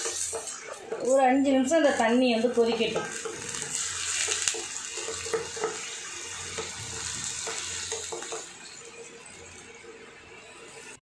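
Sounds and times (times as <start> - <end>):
spoon scraping a pan: 0.0 - 1.3, 2.1 - 8.9
water sizzling in hot oil: 0.0 - 11.0.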